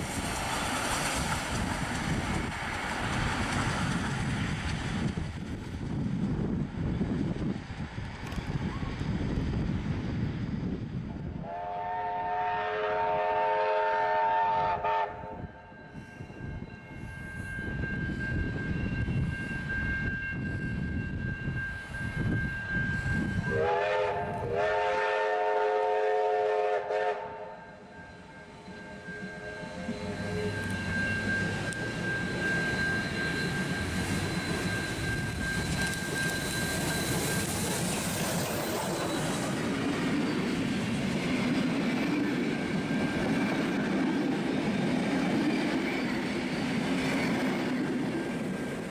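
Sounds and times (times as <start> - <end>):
wind noise on microphone: 0.0 - 12.3, 15.0 - 24.8
steam locomotive whistle: 11.4 - 16.1, 16.9 - 39.8
locomotive rumbling: 28.1 - 48.9.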